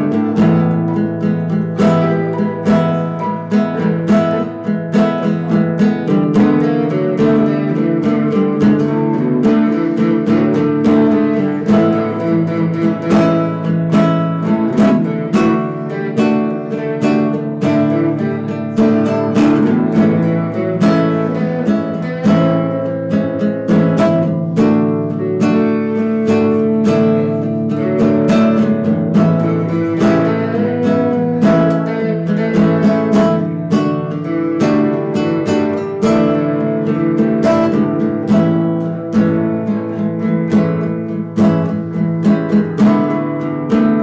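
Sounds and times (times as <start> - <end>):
acoustic guitar strumming: 0.0 - 44.0.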